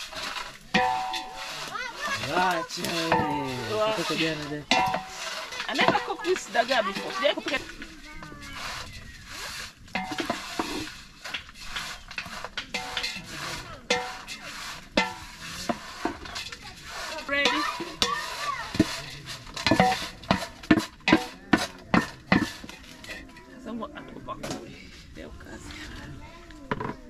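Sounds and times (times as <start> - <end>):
food sizzling: 0.0 - 21.2
metal spoon scraping pot: 0.0 - 25.2.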